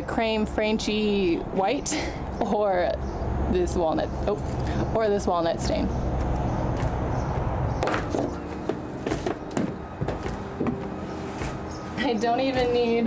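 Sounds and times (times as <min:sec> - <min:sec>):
wooden boards knocking and clattering: 0:07.8 - 0:10.8.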